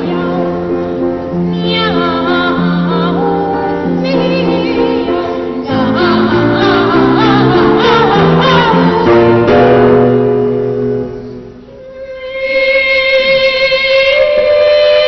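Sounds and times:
piano chords: 0.0 - 15.0
boys' choir singing: 1.8 - 9.8.

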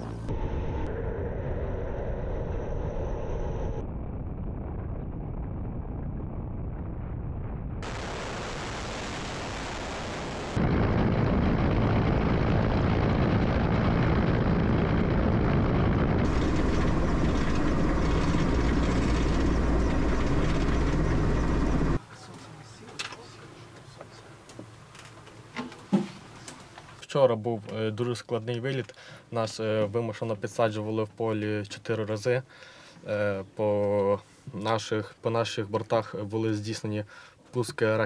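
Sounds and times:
helicopter rotor and turbine: 0.0 - 6.3, 7.8 - 22.0.

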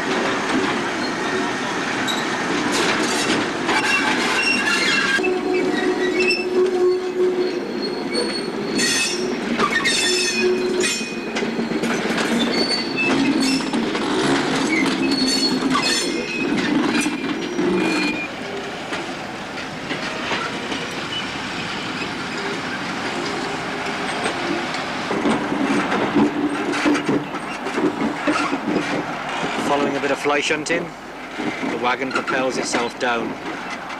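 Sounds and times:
wheels clanking over rail joints: 0.0 - 33.9
steel wheels squealing: 1.0 - 18.7, 20.0 - 24.6.

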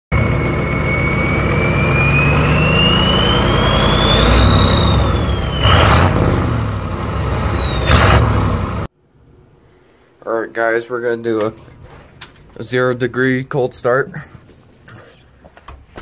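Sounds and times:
diesel engine revving: 0.1 - 8.9
turbo whistling: 0.1 - 8.9.

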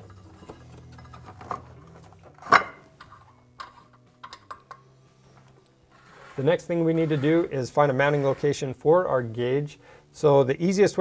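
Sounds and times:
metallic clinks and knocks: 0.0 - 4.8.

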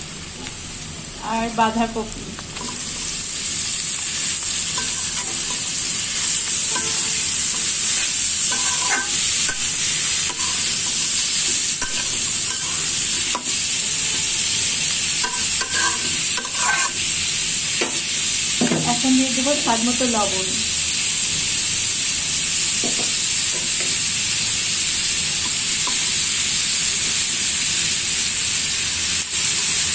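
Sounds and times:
vegetables sizzling in hot oil: 0.0 - 29.9
spatula scraping against pan: 4.7 - 14.3, 15.2 - 17.1.

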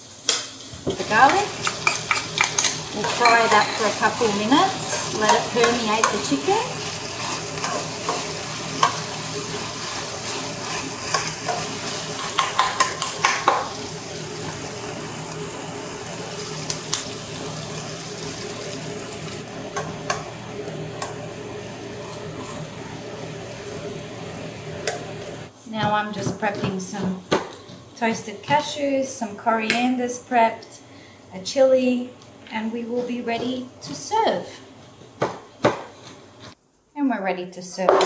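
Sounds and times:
chicken sizzling in a frying pan: 0.0 - 25.5
metal tongs scraping a pan: 0.9 - 13.8
sauce simmering: 1.1 - 25.5.

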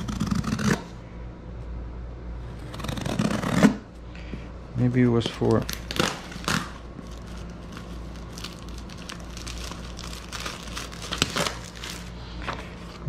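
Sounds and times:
paper and plastic crinkling: 5.1 - 13.0.

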